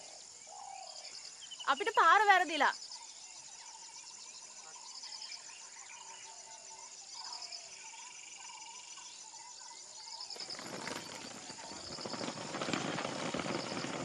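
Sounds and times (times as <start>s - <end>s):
insects trilling and chirping: 0.0s - 14.0s
suitcase rolling over dirt road: 10.2s - 14.0s.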